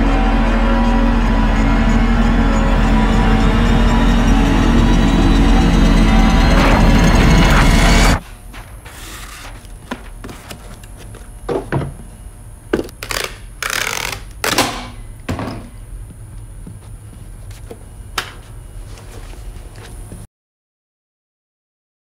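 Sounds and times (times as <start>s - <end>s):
packing tape ripping: 12.9s - 14.8s.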